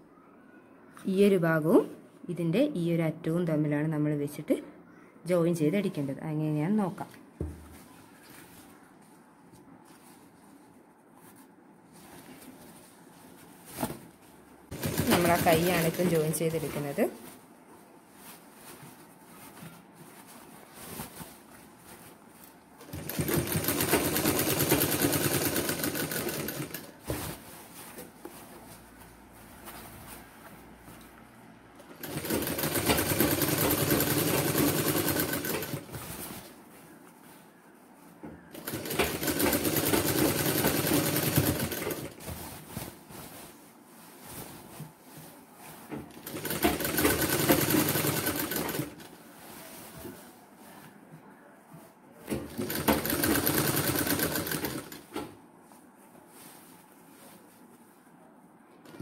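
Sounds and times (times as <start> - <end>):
sewing machine running: 14.7 - 16.4, 22.8 - 26.9, 31.9 - 35.9, 38.5 - 42.2, 46.2 - 49.1, 52.5 - 55.0.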